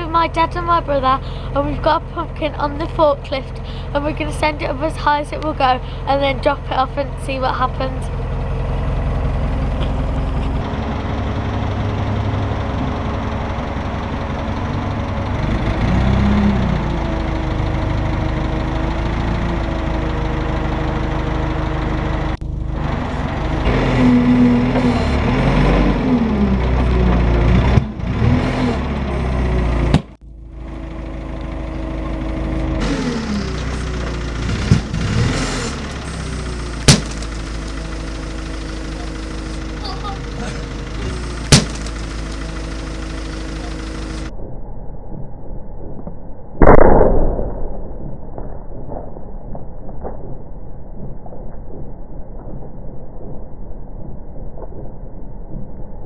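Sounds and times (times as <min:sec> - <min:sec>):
forklift engine revving: 0:00.0 - 0:44.3.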